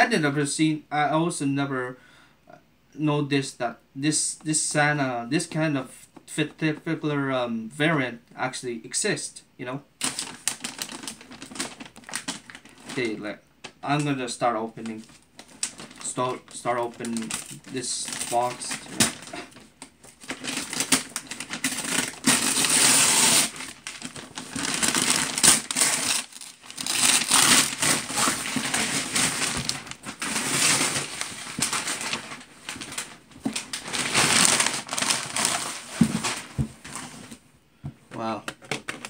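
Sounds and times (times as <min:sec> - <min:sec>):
paper wrapping crumpling: 0:10.0 - 0:13.8, 0:14.8 - 0:37.4.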